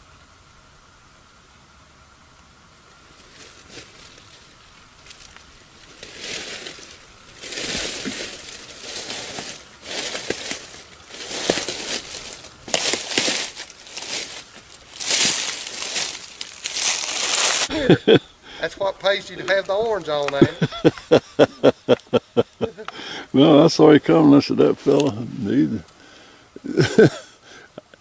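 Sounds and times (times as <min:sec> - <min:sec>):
faint leaf rustles: 0:00.0 - 0:28.0
boots crunching through dry leaves: 0:03.2 - 0:21.5.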